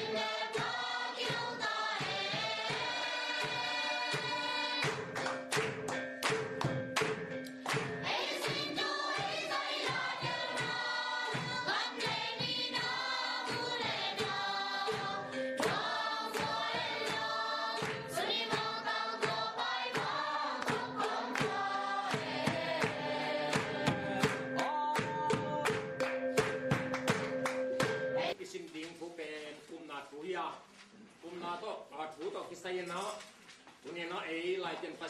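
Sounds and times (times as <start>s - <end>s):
group of people singing: 0.0s - 5.3s, 8.0s - 26.0s
sharp percussive beats: 0.0s - 28.4s.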